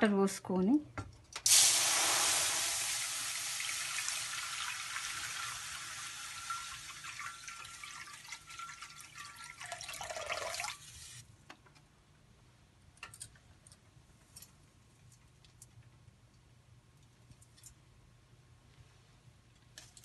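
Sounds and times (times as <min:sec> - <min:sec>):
water pouring into a steel pot: 0:01.5 - 0:11.2.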